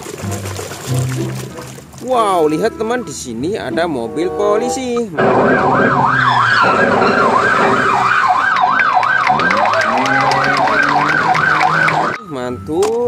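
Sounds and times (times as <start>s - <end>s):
police siren wailing: 4.1s - 12.3s.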